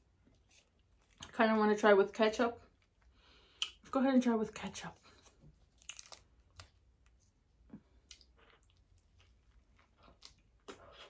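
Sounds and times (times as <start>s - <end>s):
soft chewing: 0.0s - 1.4s, 5.0s - 11.0s
wet squishes: 5.2s - 11.0s.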